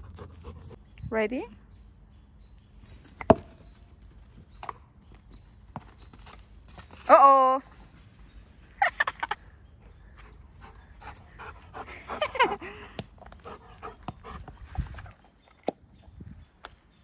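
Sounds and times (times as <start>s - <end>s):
puppy panting: 0.0s - 0.8s, 10.6s - 12.8s, 13.4s - 15.2s.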